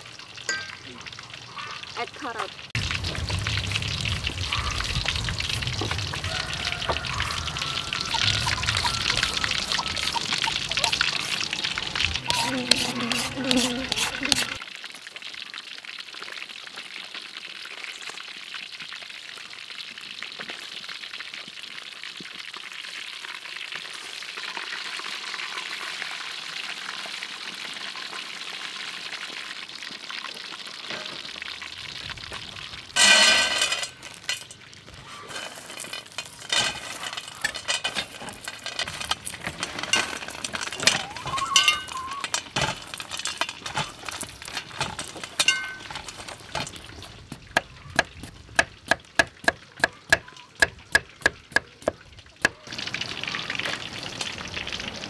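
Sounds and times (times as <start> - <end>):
fish sizzling in hot oil: 0.0 - 55.0
peanuts clinking on metal tray: 33.0 - 47.0.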